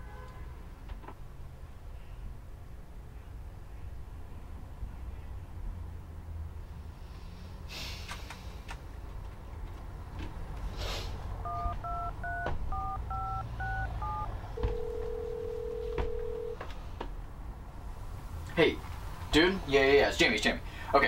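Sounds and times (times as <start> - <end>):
two-tone keypad beeps: 11.4 - 16.5
phone ringback tone: 11.4 - 16.6.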